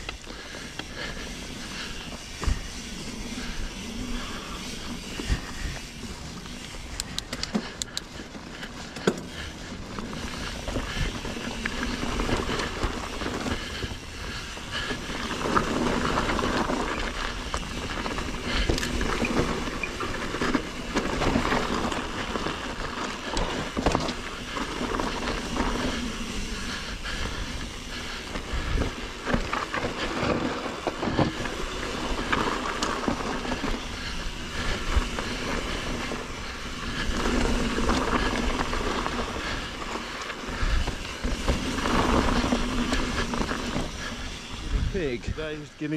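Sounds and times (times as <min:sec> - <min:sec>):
bike rattling and knocking: 0:00.0 - 0:45.9
bike tyres on rough ground: 0:00.0 - 0:45.9
wind on microphone: 0:40.6 - 0:45.5.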